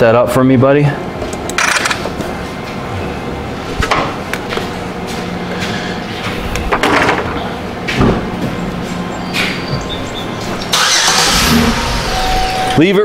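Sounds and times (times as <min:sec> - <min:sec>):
knocks and clunks: 0:06.6 - 0:08.6.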